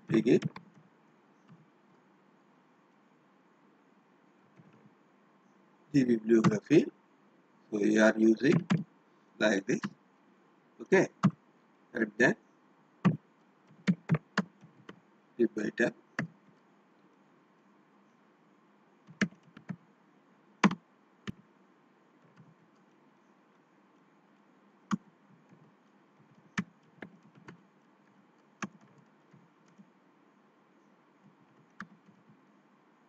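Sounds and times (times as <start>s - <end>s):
keyboard keys clicking: 0.0s - 0.7s, 8.4s - 8.8s, 13.1s - 15.0s, 19.1s - 19.8s
faint steady hiss: 0.0s - 33.0s.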